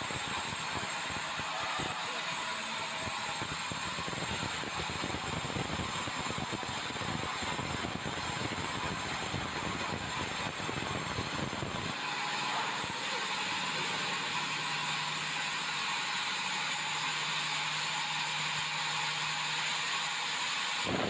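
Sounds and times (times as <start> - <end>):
band saw cutting wood: 0.0 - 5.2, 11.6 - 21.0.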